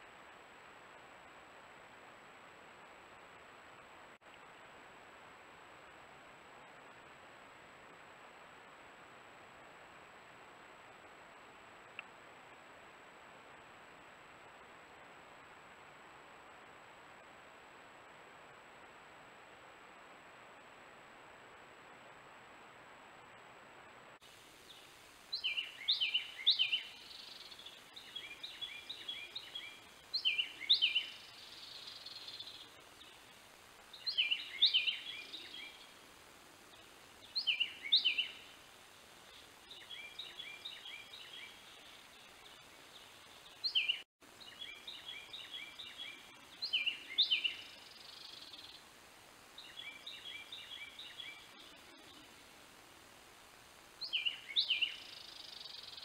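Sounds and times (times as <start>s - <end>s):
steady hiss: 0.0s - 56.0s
songbird singing: 24.6s - 52.7s, 53.6s - 56.0s.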